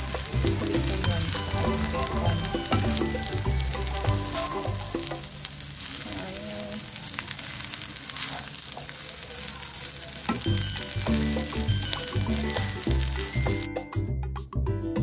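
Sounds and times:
background music: 0.0 - 5.7, 10.4 - 15.0
rice sizzling in a pan: 0.0 - 13.7.

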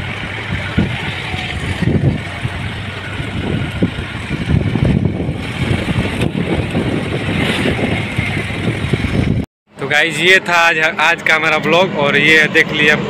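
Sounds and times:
wind buffeting microphone: 0.0 - 9.5
steady rush of motorcycle ride: 0.0 - 13.0.

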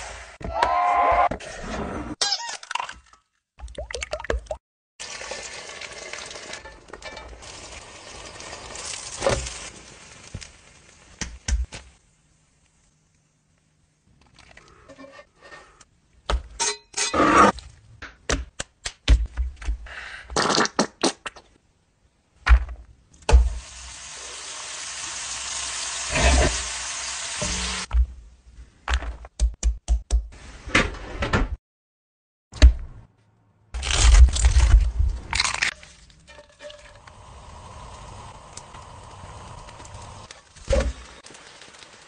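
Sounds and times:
egg sizzling in a skillet: 5.0 - 11.3, 23.4 - 27.9, 36.4 - 42.0.

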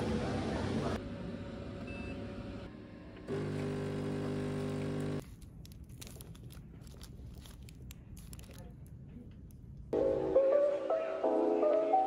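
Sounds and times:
coffee machine humming: 0.0 - 5.2
aluminium foil crinkling: 5.2 - 9.6.

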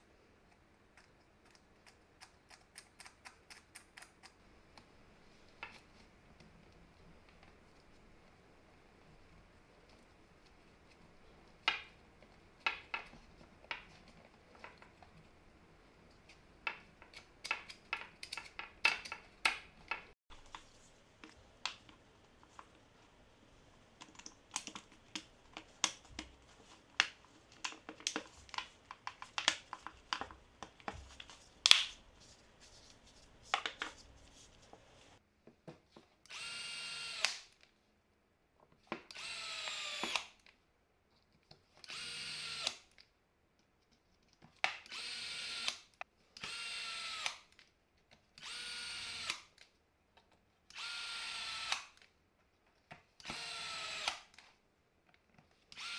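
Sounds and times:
plastic parts clicking and knocking: 16.6 - 20.6, 24.0 - 32.0
power screwdriver whirring: 36.3 - 37.4, 39.1 - 40.3, 41.9 - 42.8, 44.9 - 45.8, 46.4 - 47.4, 48.4 - 49.4, 50.7 - 51.9, 53.2 - 54.3.

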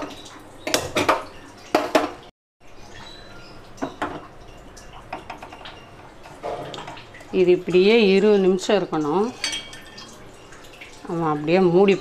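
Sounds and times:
metal pots clattering: 7.7 - 10.7.

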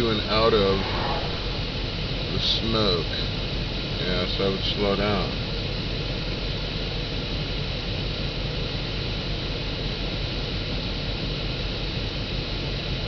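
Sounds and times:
car road noise hiss: 0.0 - 3.3.

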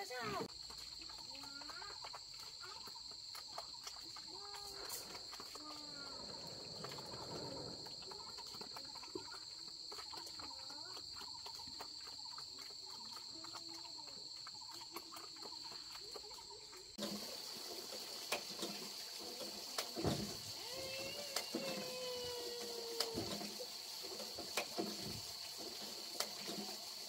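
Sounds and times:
insects shrilling: 1.0 - 27.0.

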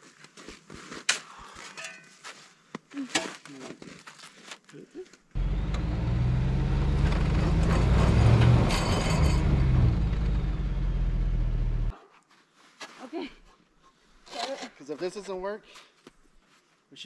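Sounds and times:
truck engine revving: 5.4 - 11.9
wheels spinning in snow: 5.4 - 11.9.

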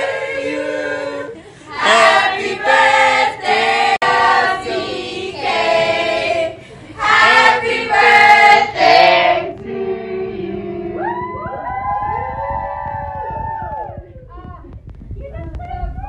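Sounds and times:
voices singing together: 0.0 - 11.8.

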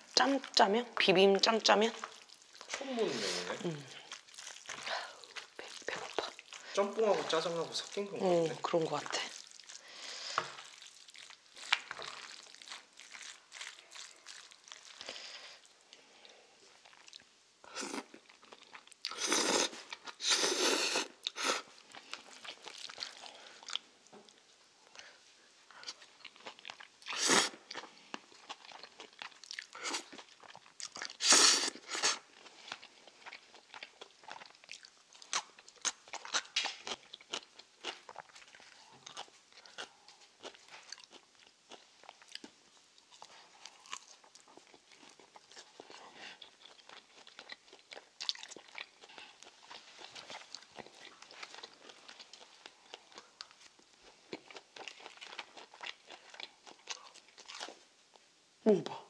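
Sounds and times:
chopsticks mixing sticky noodles: 0.2 - 15.1.

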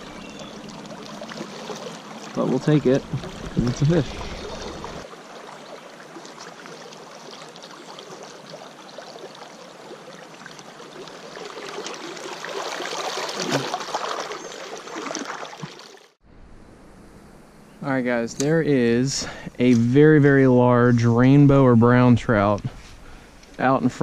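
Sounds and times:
creek water flowing: 0.0 - 16.2.

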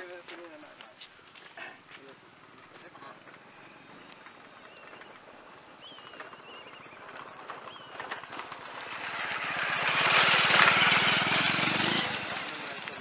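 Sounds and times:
motor vehicle passing by: 3.3 - 13.0.

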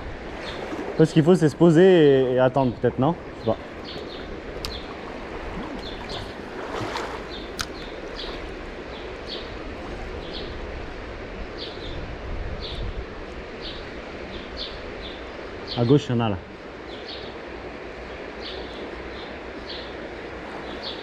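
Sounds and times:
river water flowing: 0.0 - 12.4, 13.0 - 21.0
bird chirping: 2.6 - 5.0, 5.6 - 6.4, 7.2 - 9.5.

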